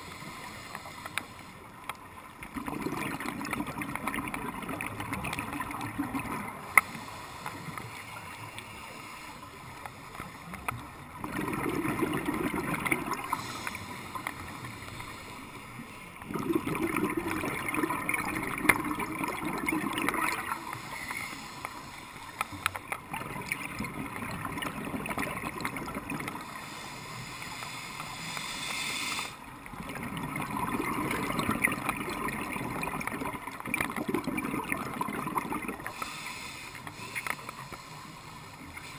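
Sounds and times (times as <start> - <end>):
scuba regulator bubbling exhalations: 2.4 - 6.7, 11.2 - 14.5, 16.2 - 20.9, 23.1 - 26.4, 29.7 - 36.2.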